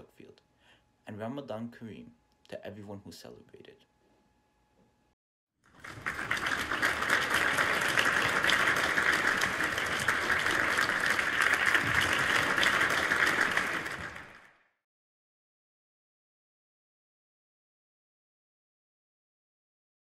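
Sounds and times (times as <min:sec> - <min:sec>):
crowd clapping: 0:05.7 - 0:14.8.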